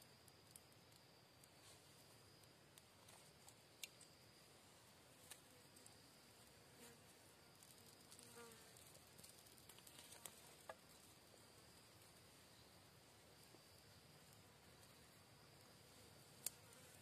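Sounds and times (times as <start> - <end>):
high insect drone: 0.0 - 17.0
insect buzzing past: 5.3 - 11.1
twigs clicking: 8.8 - 10.9.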